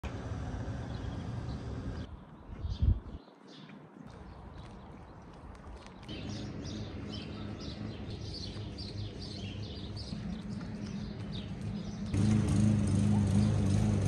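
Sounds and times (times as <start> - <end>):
louder low hum: 0.0 - 2.1, 10.0 - 14.0
steady low hum: 0.0 - 2.1
songbirds chirping: 0.1 - 14.0.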